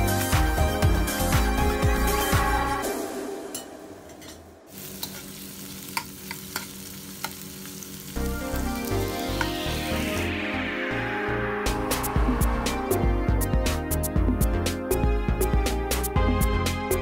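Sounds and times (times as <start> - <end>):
background music: 0.0 - 4.7, 8.2 - 17.0
food sizzling in oil: 4.2 - 10.3.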